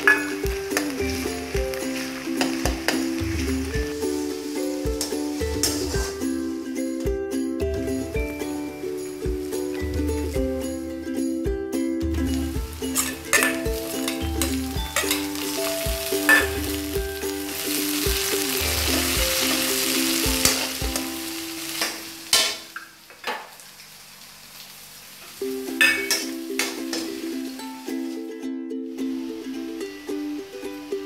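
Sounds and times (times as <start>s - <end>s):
onions sizzling in oil: 0.0s - 11.4s, 12.3s - 28.2s, 29.0s - 31.0s
metal spoon scraping pan: 12.9s - 15.6s.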